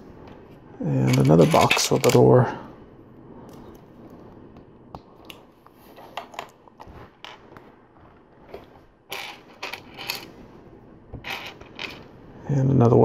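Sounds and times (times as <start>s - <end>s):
plastic bricks clicking and knocking: 1.1s - 2.2s.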